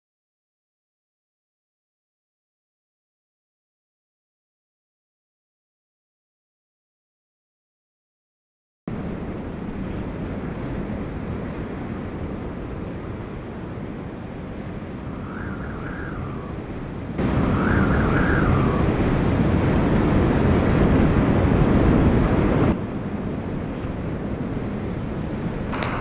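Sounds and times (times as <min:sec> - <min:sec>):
hurricane wind: 0:08.9 - 0:26.0
wavering whistle: 0:15.1 - 0:16.6, 0:17.2 - 0:19.0.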